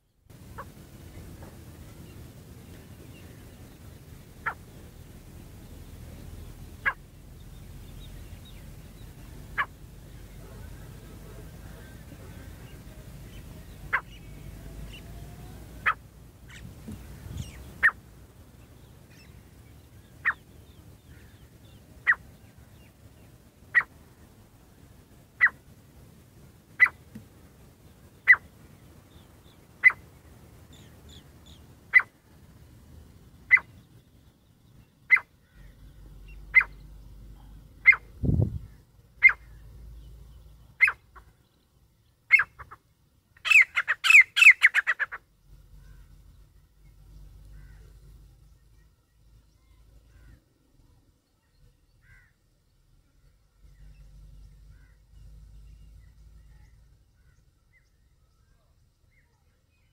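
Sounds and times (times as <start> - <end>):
bird short sharp calls: 11.6 - 18.0, 23.7 - 23.9, 33.5 - 33.8, 35.1 - 39.7, 40.7 - 41.3, 43.4 - 45.2.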